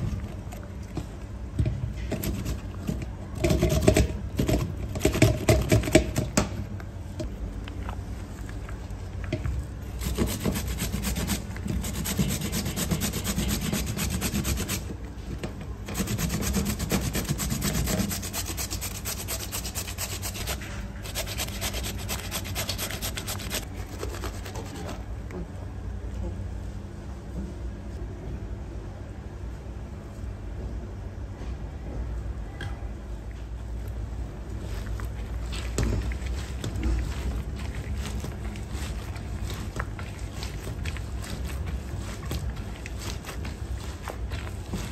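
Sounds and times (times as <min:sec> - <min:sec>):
steady low hum: 0:00.0 - 0:44.9
rhythmic scraping on hard surface: 0:10.0 - 0:14.9, 0:15.9 - 0:25.0, 0:34.6 - 0:44.9.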